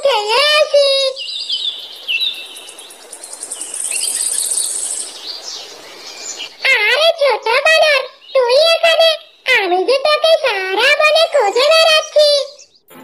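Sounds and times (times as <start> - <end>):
whistled bird calls: 1.0 - 6.7
soft hiss: 1.2 - 6.6.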